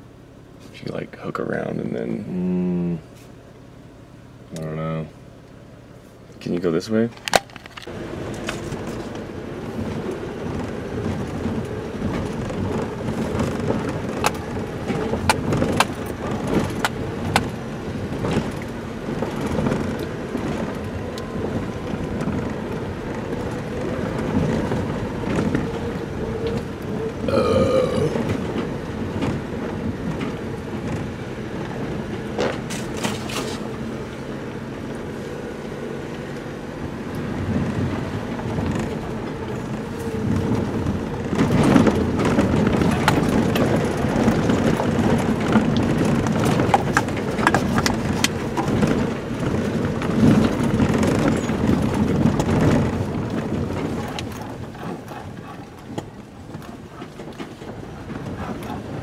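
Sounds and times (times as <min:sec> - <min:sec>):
truck engine running: 0:00.0 - 0:59.0
tyres crunching on dirt: 0:06.2 - 0:35.0
knocks and rattles of truck body: 0:40.1 - 0:59.0.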